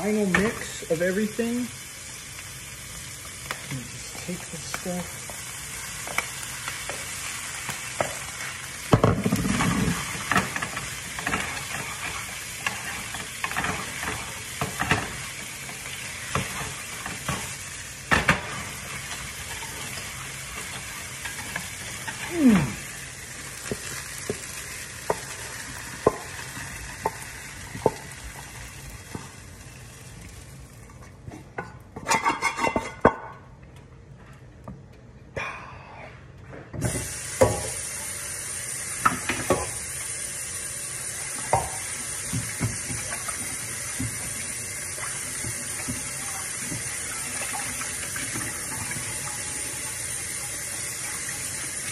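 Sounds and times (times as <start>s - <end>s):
shrimp sizzling in a frying pan: 0.0s - 30.9s, 36.8s - 51.9s
pan scraping and rattling: 9.1s - 15.2s, 32.0s - 33.1s.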